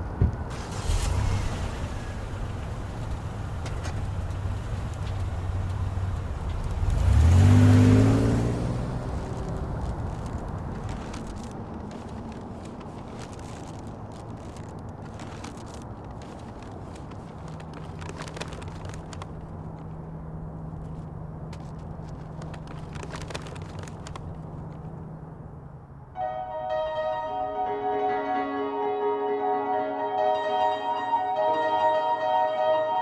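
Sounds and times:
paper bag crinkling: 0:09.2 - 0:20.0, 0:21.6 - 0:24.9.

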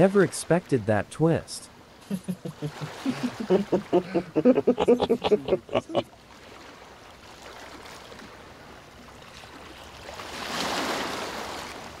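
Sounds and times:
ocean waves washing: 0:01.8 - 0:06.8.

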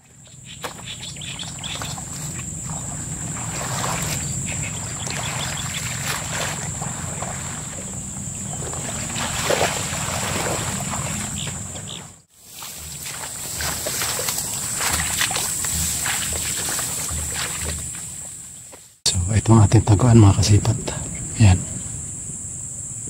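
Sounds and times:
water splashing: 0:00.0 - 0:18.8
plants rustling: 0:00.6 - 0:19.0
steady high whine: 0:19.1 - 0:23.0.

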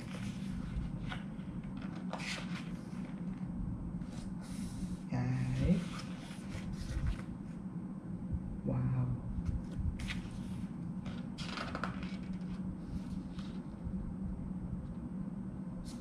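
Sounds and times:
book pages turning: 0:00.0 - 0:03.4, 0:09.6 - 0:13.7
paper rustling: 0:00.0 - 0:03.4, 0:05.8 - 0:07.3, 0:10.0 - 0:13.7
steady low hum: 0:00.0 - 0:16.0.

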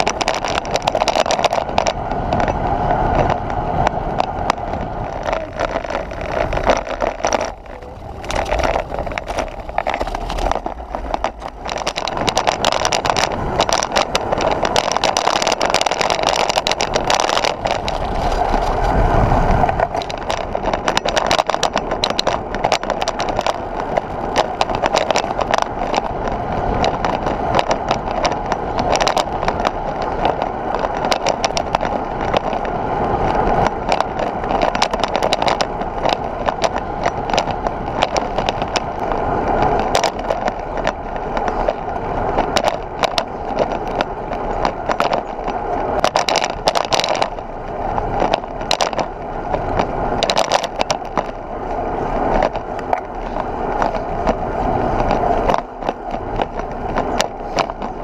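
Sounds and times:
wind and tyre noise: 0:00.0 - 0:58.0
camera mount rattling: 0:04.2 - 0:18.9.

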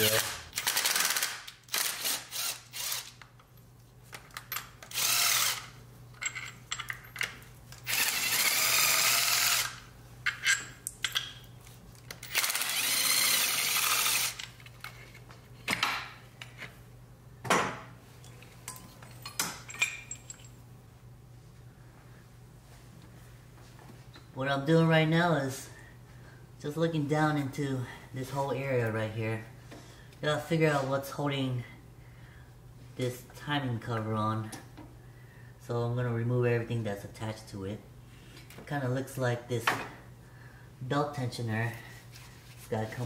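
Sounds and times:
power drill spinning out bolts: 0:00.0 - 0:03.3, 0:04.3 - 0:07.0, 0:07.8 - 0:09.8, 0:12.1 - 0:15.2.

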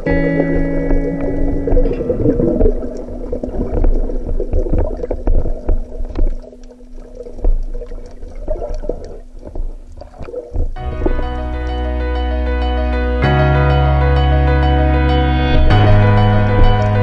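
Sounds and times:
clicks and crackles: 0:00.0 - 0:11.5
underwater rumble of water: 0:00.0 - 0:11.9, 0:15.5 - 0:17.0.

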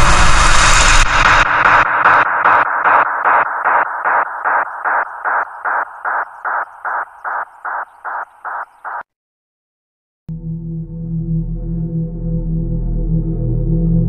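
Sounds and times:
low dark drone: 0:00.0 - 0:06.9, 0:10.3 - 0:14.0
rhythmic pulsing sound effect: 0:00.0 - 0:09.0.

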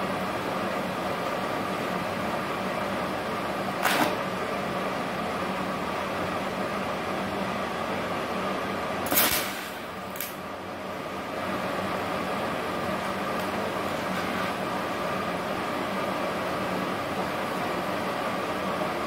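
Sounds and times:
welding arc hissing: 0:09.0 - 0:10.4.

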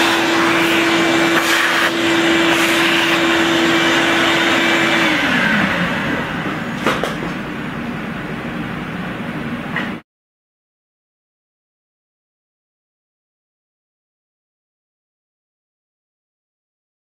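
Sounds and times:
electric motor humming: 0:00.0 - 0:06.8.

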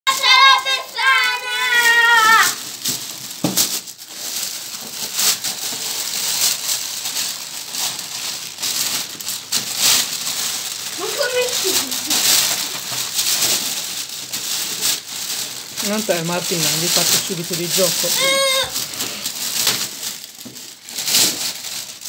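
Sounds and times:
child calling out: 0:00.0 - 0:02.6, 0:18.0 - 0:18.8
gift wrapping crinkling: 0:00.1 - 0:22.0.

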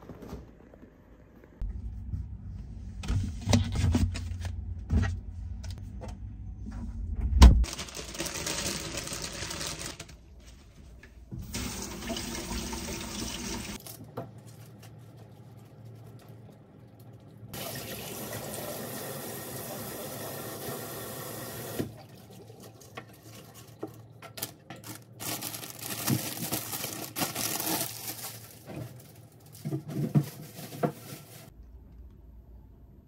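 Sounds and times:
wet leaves handling: 0:23.3 - 0:31.5.

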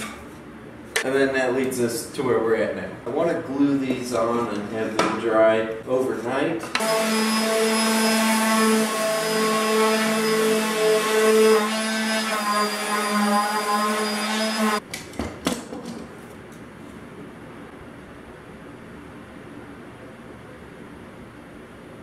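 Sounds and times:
orbital sander running: 0:06.8 - 0:14.8.

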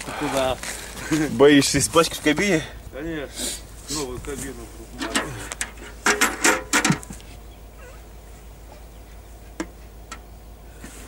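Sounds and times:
metal jerrycan clanking: 0:04.9 - 0:07.2.

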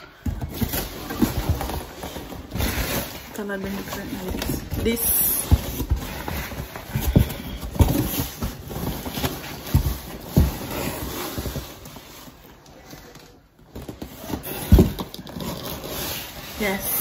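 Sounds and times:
cardboard rustling and scraping: 0:00.0 - 0:17.0
dull thumps of box: 0:03.9 - 0:12.0.

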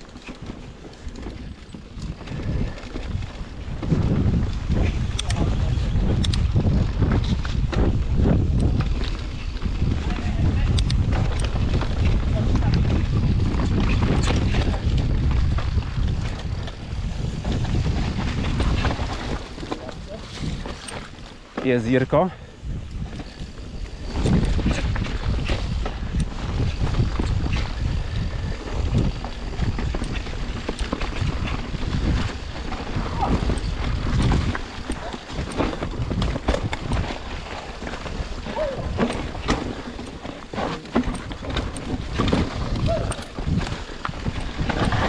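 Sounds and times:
bike tyres and frame clattering: 0:00.0 - 0:45.0
wind buffeting microphone: 0:00.0 - 0:45.0.

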